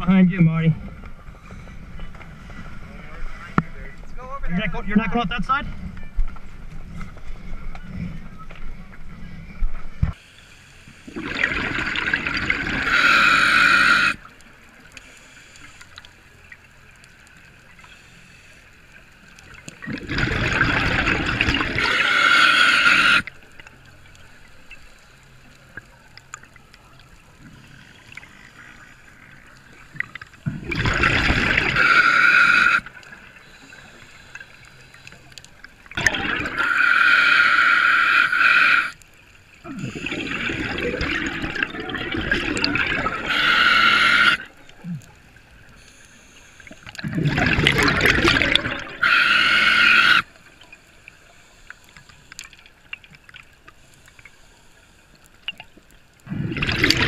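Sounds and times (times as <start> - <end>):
scuba exhaust bubbling: 11.0 - 14.3, 19.6 - 23.7, 27.3 - 34.7, 35.6 - 39.0, 39.6 - 51.2, 55.4 - 57.0.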